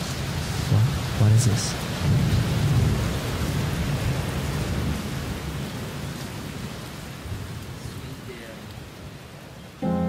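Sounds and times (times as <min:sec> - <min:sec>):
low rumble of thunder: 0:00.0 - 0:07.8
rain falling steadily: 0:00.0 - 0:10.0.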